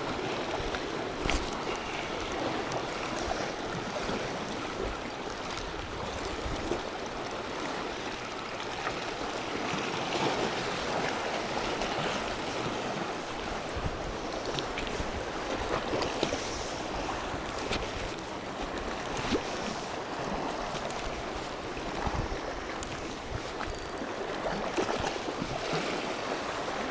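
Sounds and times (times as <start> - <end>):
waves splashing against rocks: 0.0 - 26.9.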